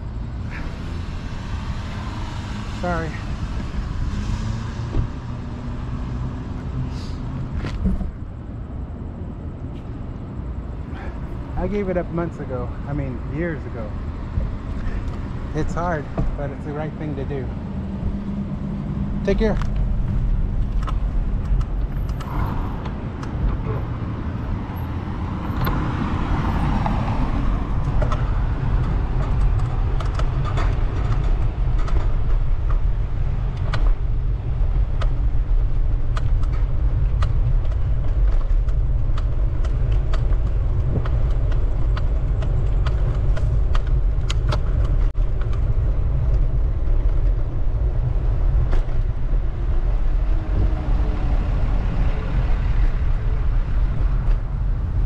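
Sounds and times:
wind and road rumble: 0.0s - 55.0s
bicycle clicks and rattles: 27.7s - 34.1s, 34.8s - 47.7s.

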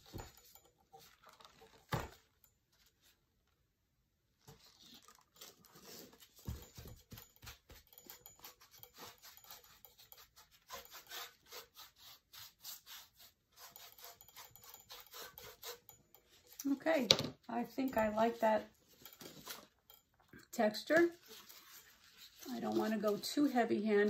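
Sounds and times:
paintbrush scratching: 5.8s - 16.6s, 21.0s - 24.0s.

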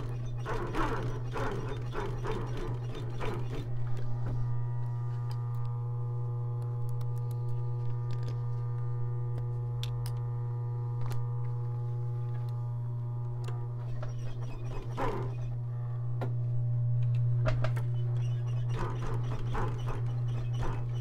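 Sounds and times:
sewing machine motor humming: 0.0s - 4.9s, 11.0s - 15.6s, 17.8s - 21.0s.

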